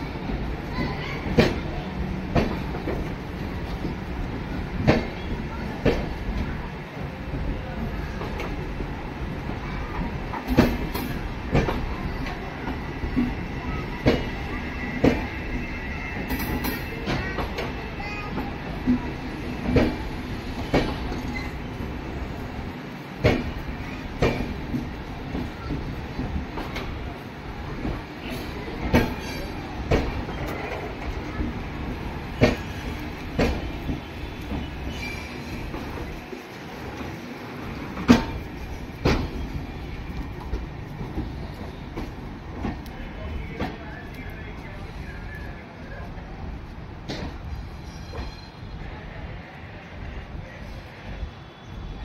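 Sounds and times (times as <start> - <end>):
train coaches rumbling: 0.0 - 52.0
wheel clacks over rail joints: 27.8 - 36.2.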